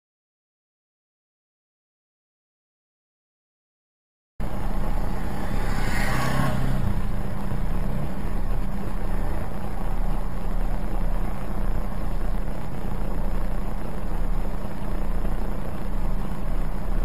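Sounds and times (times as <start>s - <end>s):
car engine idling: 4.4s - 17.0s.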